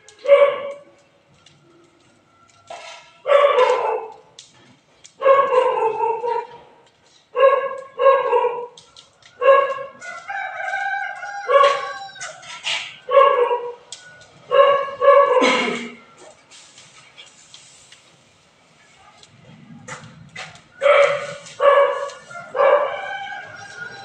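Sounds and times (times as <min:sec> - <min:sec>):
dog barking and yelping: 0:00.2 - 0:00.9, 0:03.2 - 0:04.3, 0:05.2 - 0:06.7, 0:07.3 - 0:08.8, 0:09.4 - 0:10.0, 0:11.4 - 0:13.8, 0:14.5 - 0:16.3, 0:20.8 - 0:24.0.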